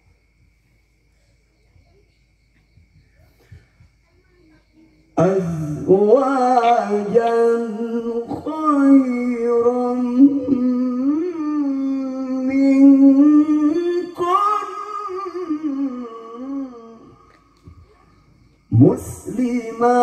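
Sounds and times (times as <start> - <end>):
breaths: 3.1 - 4.0
man reciting melodically: 5.1 - 20.0.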